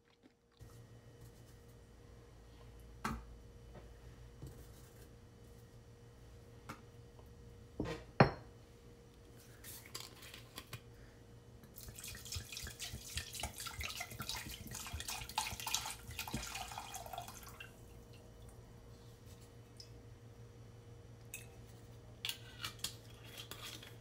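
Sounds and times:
liquid pouring into a metal saucepan: 11.7 - 17.9.

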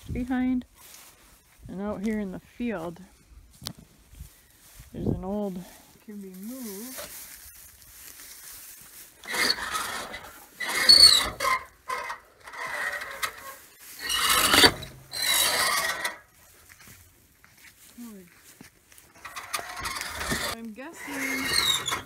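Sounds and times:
metal squeal: 9.2 - 16.2, 19.2 - 22.0
metal grating on metal: 9.2 - 16.4, 19.1 - 22.0.

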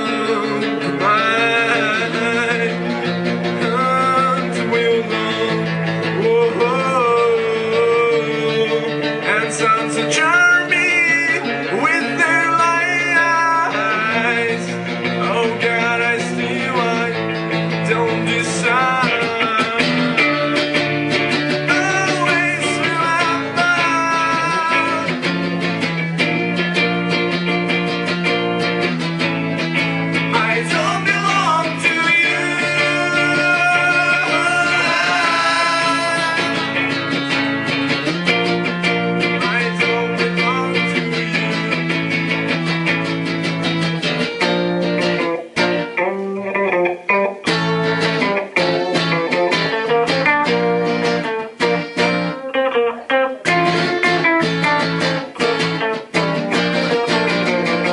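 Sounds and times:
man singing into microphone: 0.0 - 20.7, 21.5 - 25.7, 30.0 - 42.6
strummed guitar: 0.0 - 57.9.

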